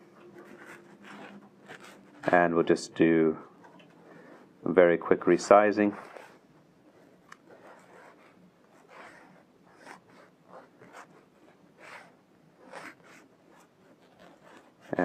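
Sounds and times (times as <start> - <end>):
fingertip rubbing on touchscreen: 0.4 - 2.7, 7.0 - 15.0.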